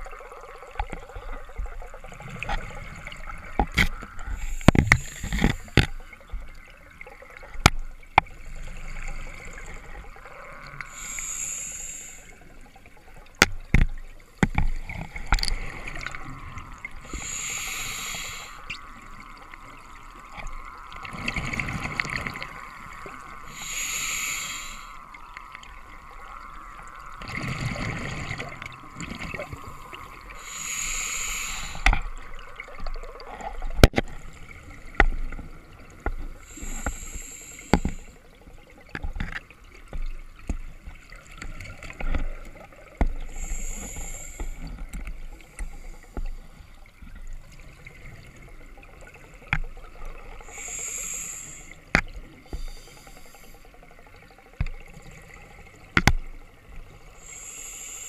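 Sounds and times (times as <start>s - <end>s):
regulator hissing inhalation: 10.9s - 12.4s, 17.0s - 19.0s, 22.3s - 25.2s, 29.2s - 32.1s, 36.4s - 38.2s, 43.3s - 44.8s, 50.4s - 51.9s, 52.5s - 53.7s, 57.1s - 58.0s
exhaled bubbles rumbling: 12.4s - 23.8s, 24.6s - 30.6s.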